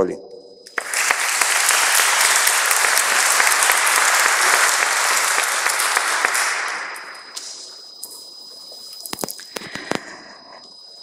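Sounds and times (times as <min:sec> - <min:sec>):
audience applauding: 0:00.7 - 0:07.7.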